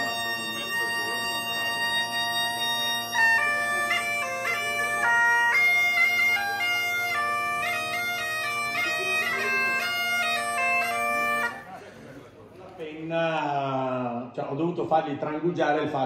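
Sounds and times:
bagpipe chanter melody: 0.0s - 11.8s
bagpipe drone: 0.0s - 11.8s.

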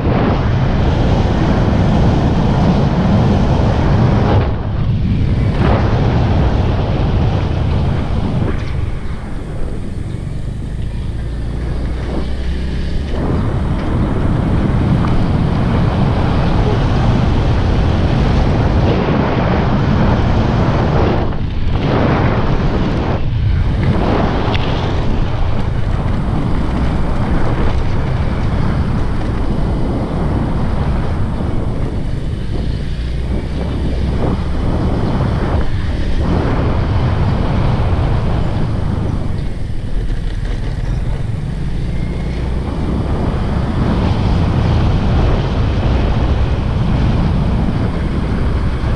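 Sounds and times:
wind buffeting microphone: 0.0s - 48.9s
scooter engine running: 6.2s - 18.8s, 24.6s - 48.9s.

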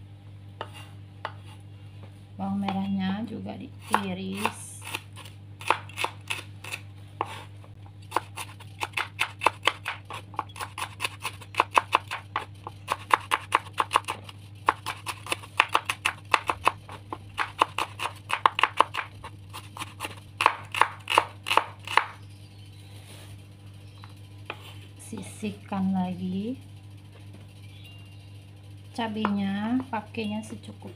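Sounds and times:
knife chopping on cutting board: 0.6s - 1.6s, 3.8s - 7.5s, 8.1s - 22.1s.

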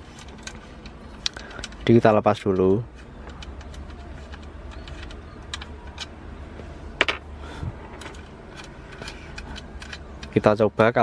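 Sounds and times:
steady low hum: 0.0s - 10.7s
plug and cable clicking and rattling: 7.9s - 11.0s.

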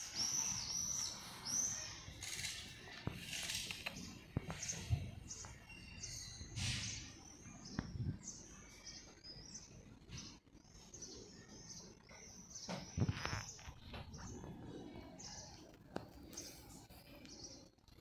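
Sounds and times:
small birds chirping: 0.0s - 18.0s
rustles and thumps: 12.7s - 14.3s.

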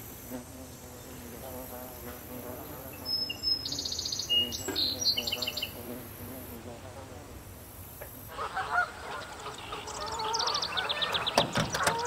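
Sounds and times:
bees buzzing: 0.0s - 12.0s
high chirps: 3.0s - 5.8s.

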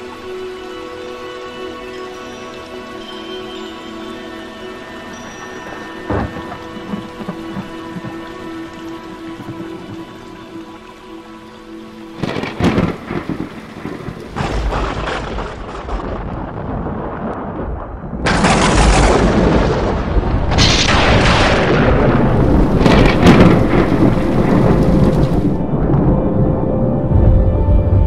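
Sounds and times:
rain: 0.0s - 28.0s
rumbling thunder: 12.2s - 28.0s.

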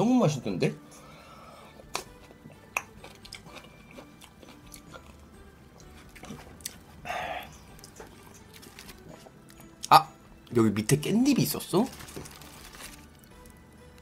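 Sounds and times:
breathy sound: 0.9s - 1.8s, 7.0s - 7.7s
man chewing food: 1.6s - 10.5s
wet mouth clicks: 1.9s - 3.5s.

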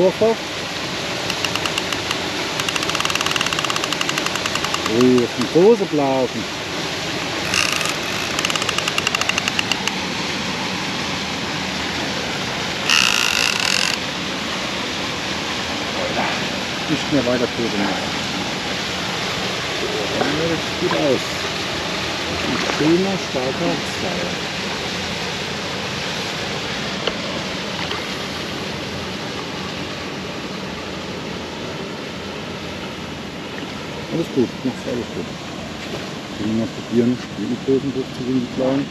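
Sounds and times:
reel drag buzz: 1.2s - 5.8s, 7.2s - 10.0s, 12.8s - 14.1s
fishing reel drag clicking: 1.3s - 5.5s, 7.4s - 10.0s, 12.9s - 14.0s.

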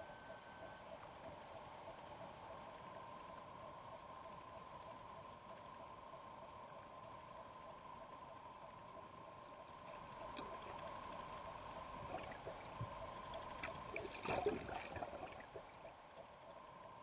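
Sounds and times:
faint steady tones: 0.0s - 17.0s
underwater water sloshing: 9.9s - 15.9s
water splashing: 13.4s - 15.6s.

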